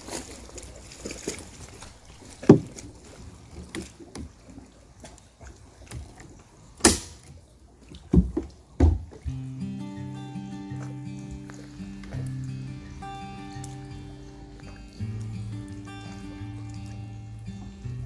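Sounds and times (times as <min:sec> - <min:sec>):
faint water: 0:00.0 - 0:18.0
knocks and bumps on a boat: 0:02.2 - 0:05.2, 0:05.8 - 0:09.4.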